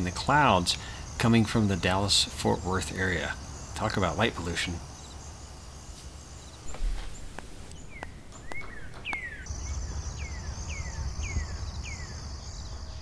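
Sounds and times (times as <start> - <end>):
crickets trilling: 0.0 - 13.0
high insect drone: 0.0 - 13.0
songbird whistling descending notes: 6.7 - 12.8.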